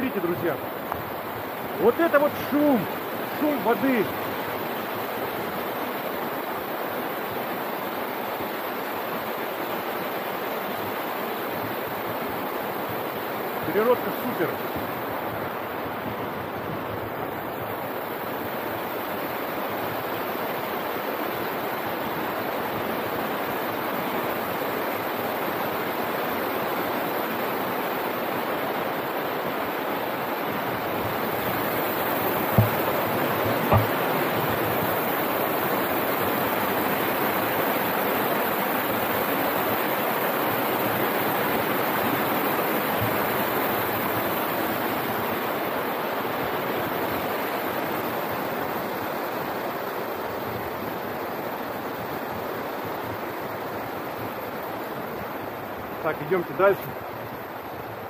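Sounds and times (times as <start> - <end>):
white water over rocks: 0.0 - 58.0
dull knocks: 32.3 - 34.5.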